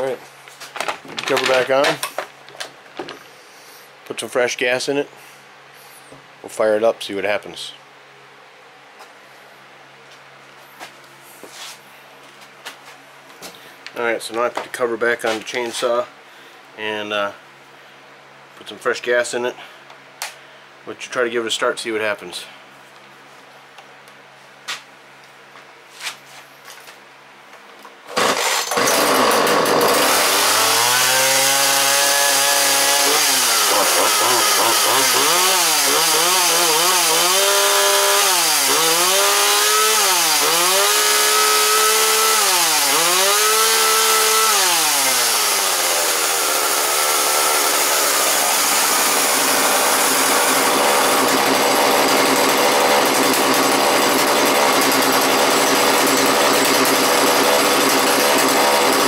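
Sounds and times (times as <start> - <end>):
chainsaw starting and revving: 28.1 - 59.0.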